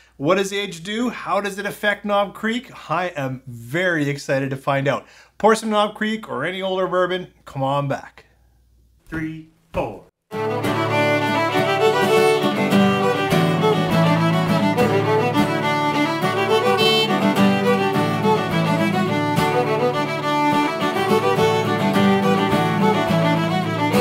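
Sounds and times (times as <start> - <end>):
instrumental music with beat: 10.3 - 24.0.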